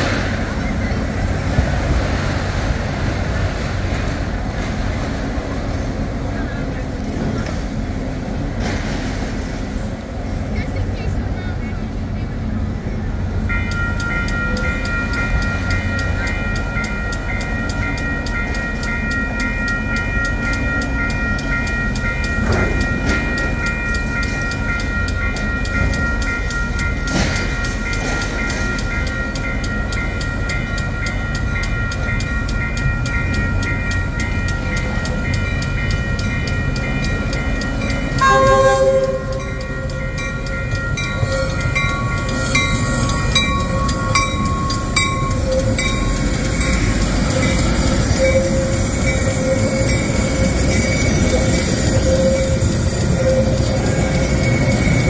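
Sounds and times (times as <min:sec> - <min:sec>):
train on tracks: 0:00.0 - 0:55.0
rhythmic ringing: 0:13.5 - 0:55.0
train horn blast: 0:38.2 - 0:39.7.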